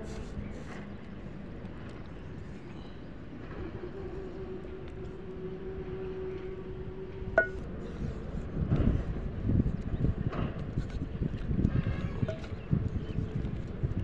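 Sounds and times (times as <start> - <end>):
faint held hum: 0.0 - 14.0
low rumbling noise: 0.0 - 14.0
stick knocking metal pot: 7.4 - 7.6.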